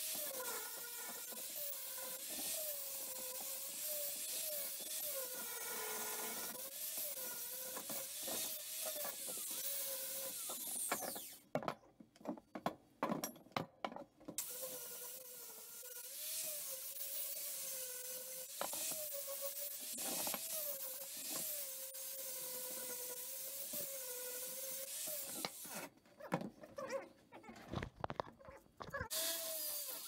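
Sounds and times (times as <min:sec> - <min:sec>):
angle grinder grinding steel: 0:00.0 - 0:11.4, 0:14.4 - 0:26.0, 0:29.0 - 0:30.0.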